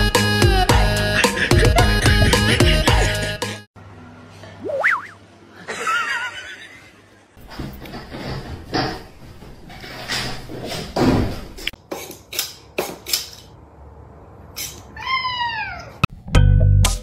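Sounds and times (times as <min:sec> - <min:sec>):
music: 0:00.0 - 0:03.7, 0:16.1 - 0:17.0
cat meowing: 0:14.9 - 0:16.1.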